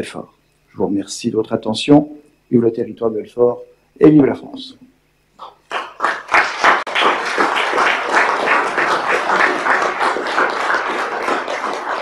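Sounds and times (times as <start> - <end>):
audience applause: 5.4 - 12.0.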